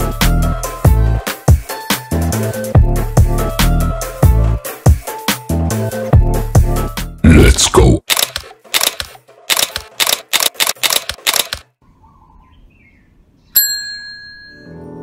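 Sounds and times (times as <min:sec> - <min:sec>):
rapid sharp clicks: 0:08.0 - 0:11.7
bell-like ding: 0:13.6 - 0:14.8.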